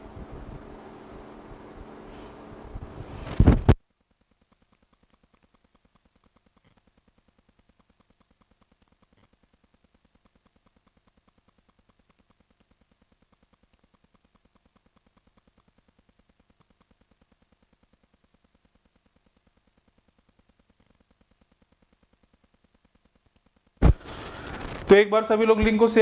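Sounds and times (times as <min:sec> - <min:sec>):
thin high whine: 0:00.0 - 0:03.8.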